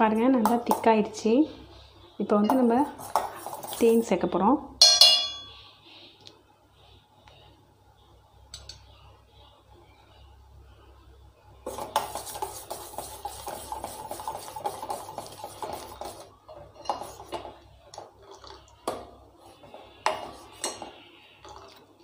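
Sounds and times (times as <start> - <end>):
spoon tapping pan: 4.8 - 5.5.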